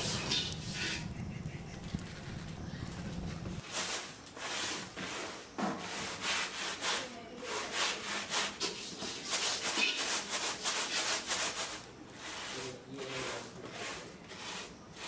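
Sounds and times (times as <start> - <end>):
rice rustling on bamboo tray: 0.0 - 15.0.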